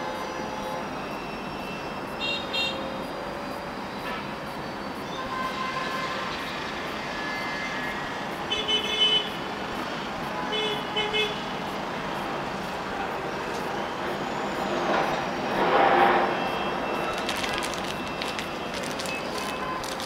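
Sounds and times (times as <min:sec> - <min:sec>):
steady background noise: 0:00.0 - 0:20.0
rustling: 0:17.1 - 0:20.0.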